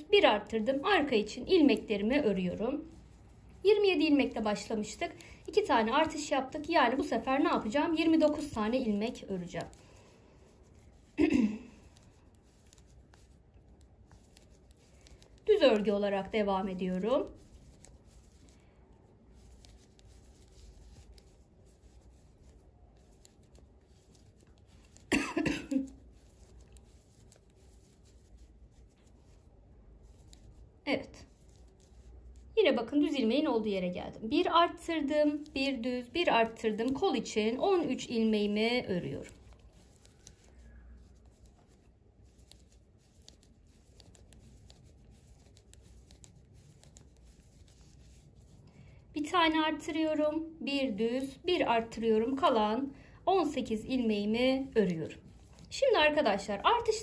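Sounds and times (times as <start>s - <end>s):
knitting needles clicking: 4.7s - 32.5s, 35.3s - 48.6s
person coughing: 11.2s - 11.8s, 25.1s - 26.0s.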